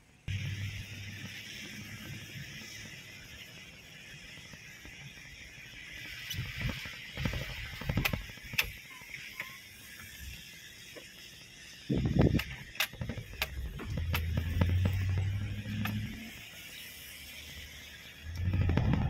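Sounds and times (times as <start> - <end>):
tyres hissing on wet road: 0.0 - 19.0.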